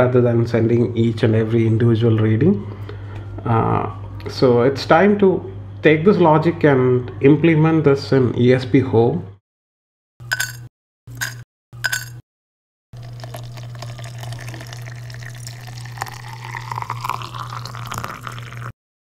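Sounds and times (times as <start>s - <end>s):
tea leaves rattling into infuser: 13.0s - 18.7s
water pouring into a mug: 13.0s - 18.8s.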